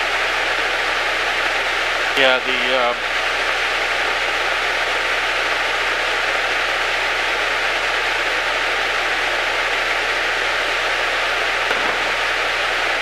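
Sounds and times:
radio static hiss: 0.7 - 3.5, 11.0 - 13.0.

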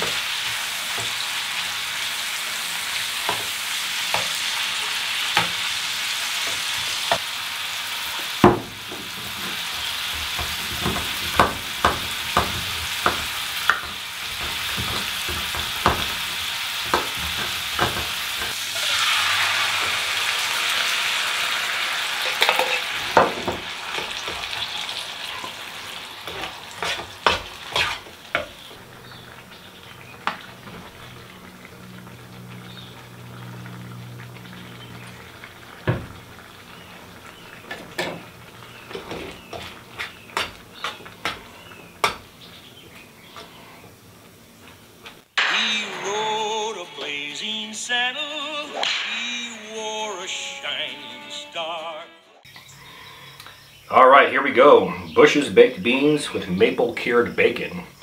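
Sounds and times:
meat sizzling in a skillet: 0.0 - 42.6.

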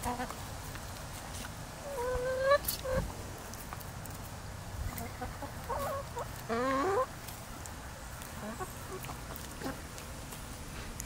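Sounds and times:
hens clucking and calling: 1.8 - 3.2, 4.9 - 10.0.

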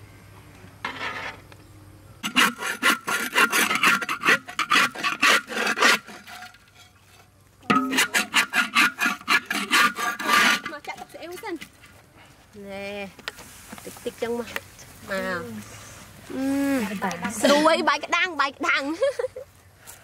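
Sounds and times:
metal spoon scraping a wok: 2.2 - 11.4.

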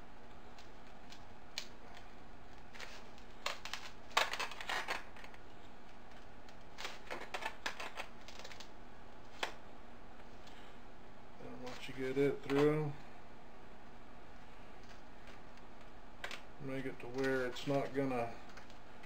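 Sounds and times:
steady low hum: 0.0 - 19.0
wire clicking and scratching in foam: 0.3 - 9.6, 14.8 - 18.8.

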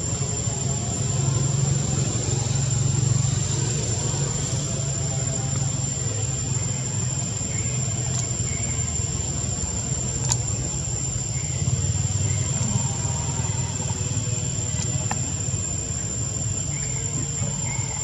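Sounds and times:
high-pitched insect drone: 0.0 - 18.0
low engine-like rumble: 0.0 - 18.0
faint clicks: 10.2 - 10.5.

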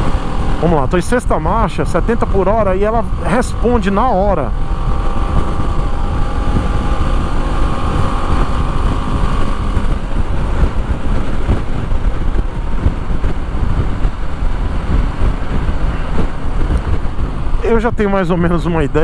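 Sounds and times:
motorcycle engine running: 0.0 - 19.0
wind rumble on microphone: 0.0 - 19.0.

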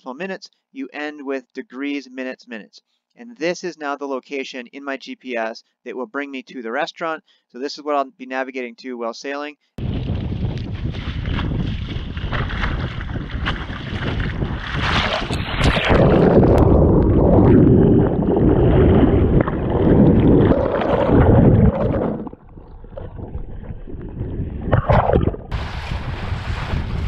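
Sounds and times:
water splashing against boat hull: 9.9 - 27.0
muffled underwater churning: 10.8 - 27.0.

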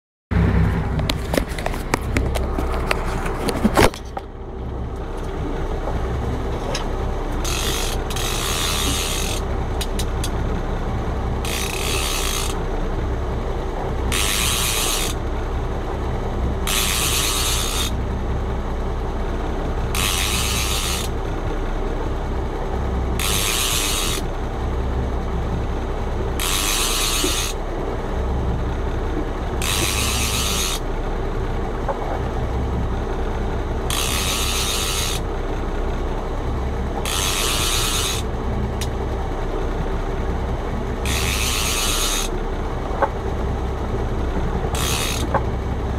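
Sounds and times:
steady low hum: 0.3 - 45.9
fishing reel winding: 7.4 - 10.0, 11.4 - 12.6, 14.1 - 15.2, 16.7 - 18.0, 20.0 - 21.1, 23.2 - 24.2, 26.4 - 27.6, 29.6 - 30.8, 33.9 - 35.2, 37.0 - 38.3, 41.0 - 42.3, 44.7 - 45.4.

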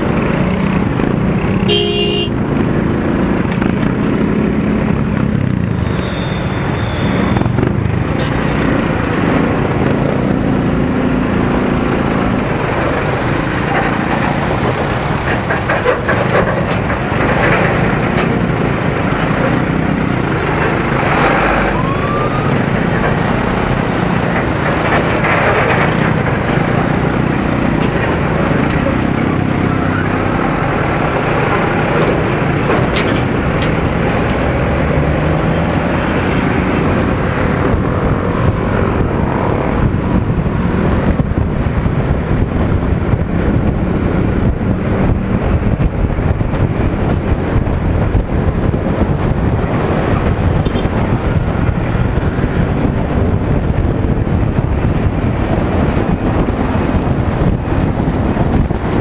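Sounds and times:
road traffic: 0.0 - 59.0
motorcycle engine running: 0.9 - 5.7
wind buffeting microphone: 6.7 - 59.0.

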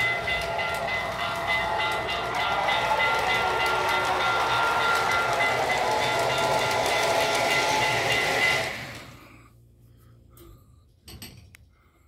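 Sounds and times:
model train running on track: 0.0 - 9.3.

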